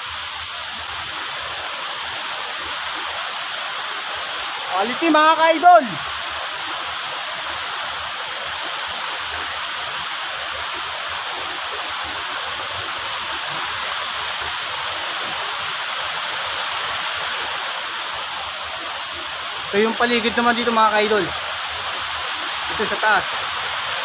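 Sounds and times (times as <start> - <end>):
waterfall rushing: 0.0 - 24.0.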